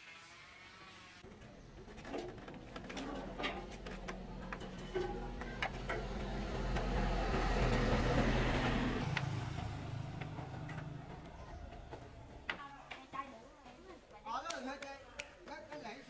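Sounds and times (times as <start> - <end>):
engine humming: 1.2 - 13.0.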